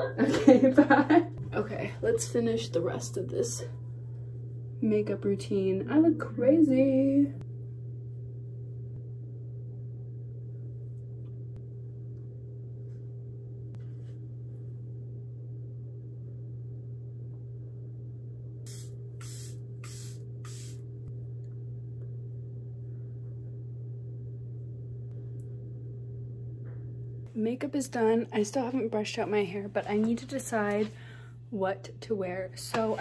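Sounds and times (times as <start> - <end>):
steady low hum: 0.0 - 33.0
spray bottle spritzing: 18.7 - 20.8.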